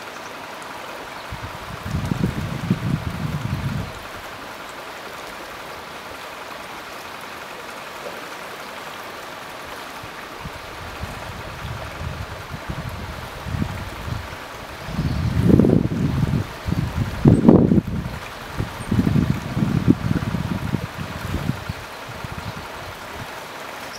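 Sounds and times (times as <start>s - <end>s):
stream rushing: 0.0s - 23.9s
wind rumbling on microphone: 1.2s - 4.4s, 10.0s - 23.4s.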